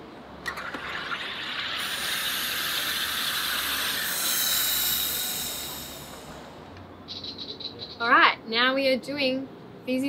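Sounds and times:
soda maker gas hissing: 0.5s - 6.8s.

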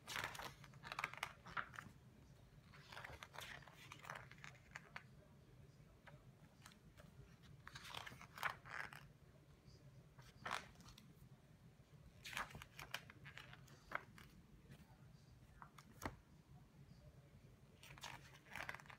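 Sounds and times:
book pages turning: 0.0s - 5.1s, 6.0s - 9.2s, 10.2s - 11.2s, 12.2s - 16.3s, 17.8s - 18.9s.

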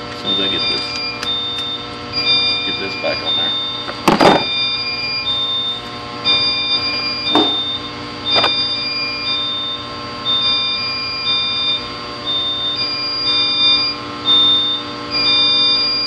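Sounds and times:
electrical hum: 0.0s - 16.0s
high electronic alarm beeps: 0.2s - 16.0s
knocks: 4.1s - 4.5s, 7.3s - 7.7s.

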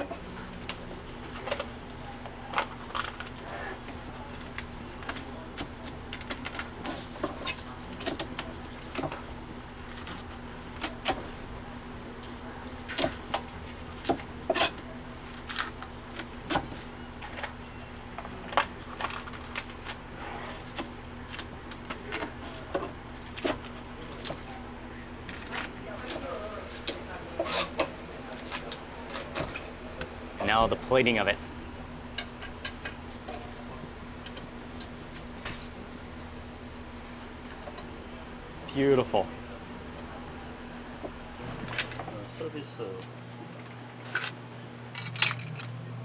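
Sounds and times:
steady low hum: 0.0s - 46.0s.

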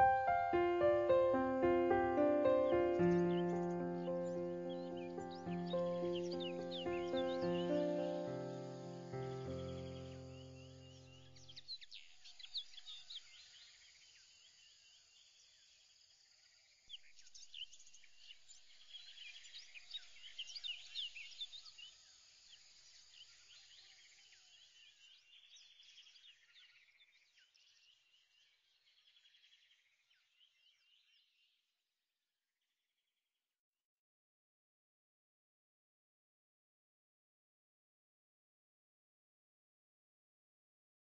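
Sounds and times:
birds chirping: 0.0s - 11.6s.

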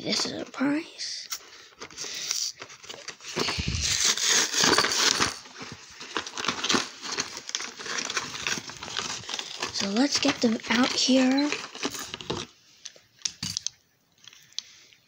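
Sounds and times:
packaging being torn open: 2.5s - 5.4s, 6.1s - 10.2s.

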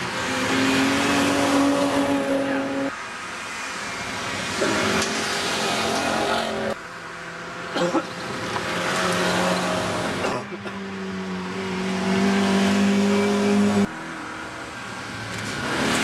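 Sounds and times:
rally car engines at high revs: 0.0s - 2.9s, 4.2s - 6.8s, 8.1s - 14.5s, 15.2s - 16.0s.

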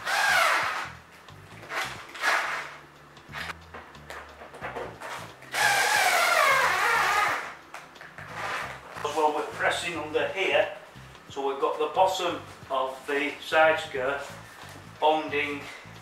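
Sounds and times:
power drill whining: 5.5s - 7.5s.

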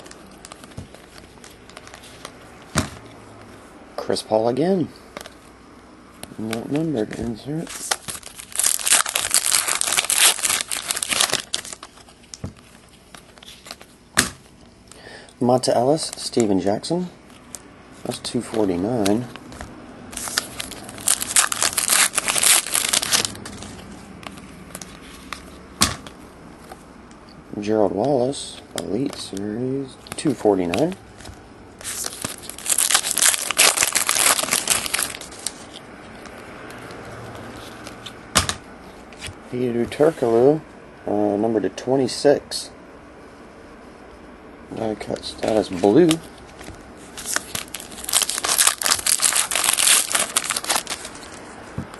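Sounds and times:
cards rustling: 0.0s - 3.7s, 4.5s - 5.5s, 6.1s - 26.9s, 27.8s - 40.4s, 44.7s - 51.9s
foil wrapper crinkling: 7.6s - 13.9s, 20.1s - 25.3s, 31.8s - 36.4s, 45.4s - 51.5s.

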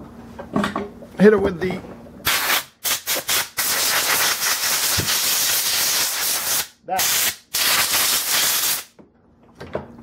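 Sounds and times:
compressed air blow gun blasting: 2.3s - 8.9s.

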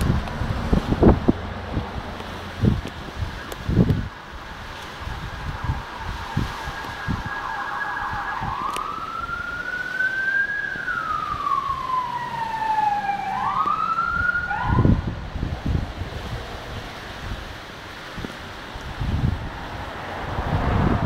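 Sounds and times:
wind rumble on microphone: 0.0s - 21.0s
emergency vehicle siren: 2.6s - 15.5s.

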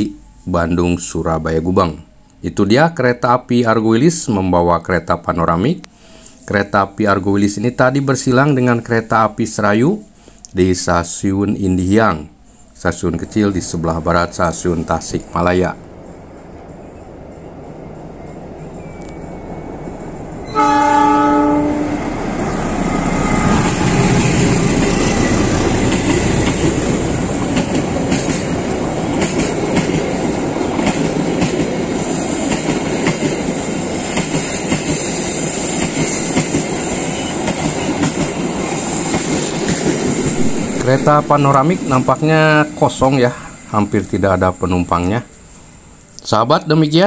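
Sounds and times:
train rumble: 0.0s - 47.0s
train horn blast: 20.4s - 22.2s, 22.8s - 25.4s
wheels clacking over rail joints: 22.2s - 43.0s.

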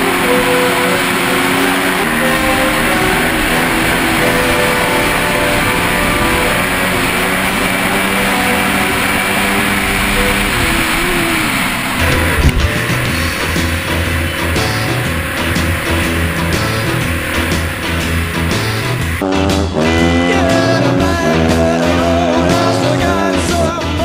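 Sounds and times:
dirt bike engine: 0.0s - 24.0s
wind noise: 9.2s - 19.2s.

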